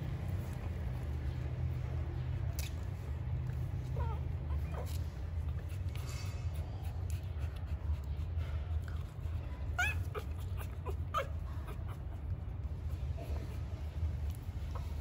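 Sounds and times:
steady low hum: 0.0s - 15.0s
puppies squeaking and whimpering: 3.9s - 5.6s, 9.6s - 13.7s.

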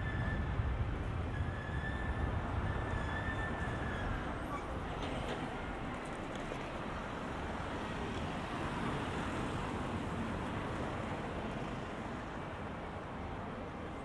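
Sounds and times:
city street traffic: 0.0s - 14.0s.

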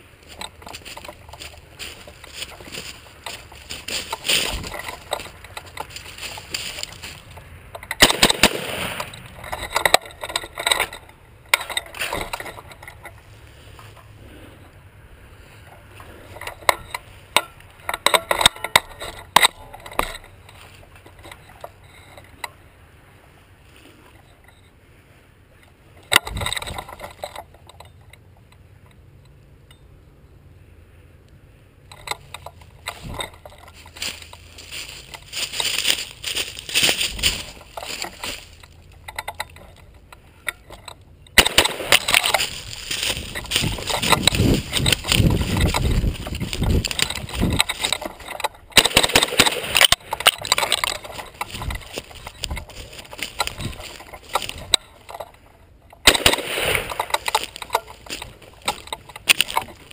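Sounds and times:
rustling through dry brush: 0.0s - 27.6s, 31.9s - 59.9s
sharp impacts: 0.3s - 13.0s, 31.9s - 55.2s, 56.0s - 59.9s.

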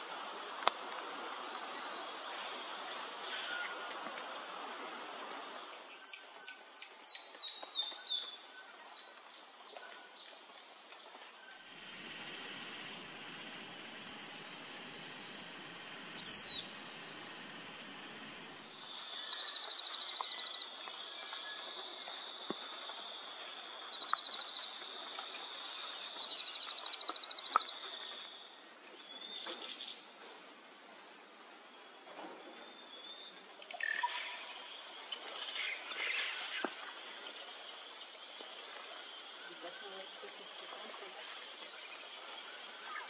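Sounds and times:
insects buzzing high-pitched: 10.2s - 43.0s
rapid pulsed trills: 11.5s - 19.6s, 27.7s - 37.4s
sharp animal calls: 15.2s - 17.4s.

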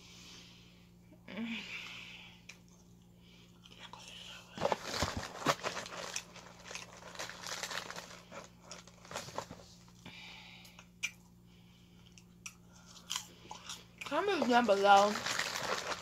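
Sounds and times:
low steady hum: 0.0s - 16.0s
chewing crunchy crackers: 4.7s - 9.3s, 12.0s - 16.0s.

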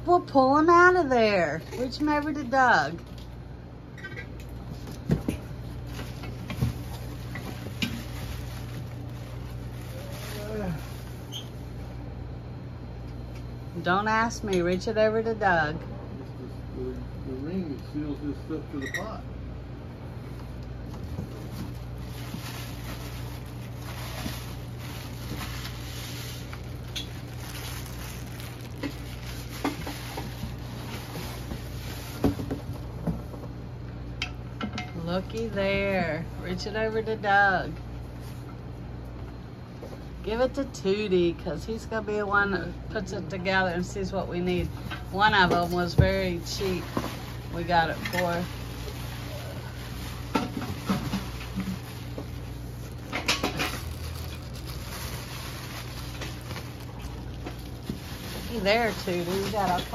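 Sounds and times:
low steady hum: 0.0s - 59.9s
packing and cardboard rustling: 4.7s - 11.6s, 20.8s - 33.3s, 45.1s - 59.9s.

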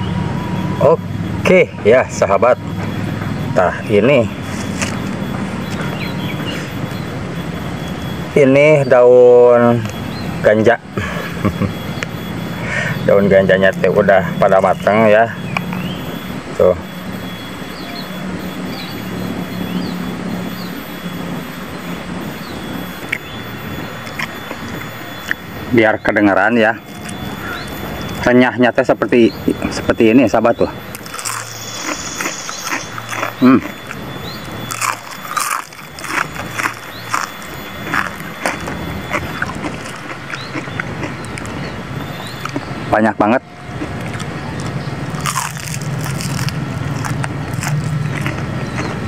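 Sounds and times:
low engine drone: 0.0s - 49.0s
crisp fried food crunching: 30.9s - 41.7s, 43.7s - 49.0s.

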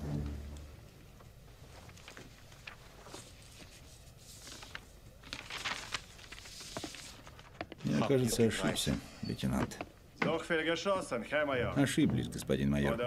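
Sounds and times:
paper rustling: 1.5s - 8.9s.

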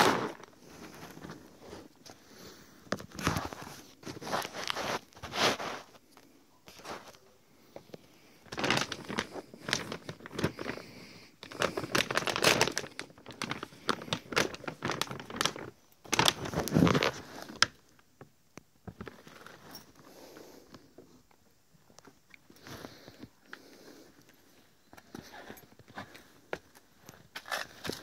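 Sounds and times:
plastic sack tearing and crinkling: 0.0s - 1.9s, 3.0s - 6.0s, 8.5s - 18.0s, 27.0s - 28.0s.

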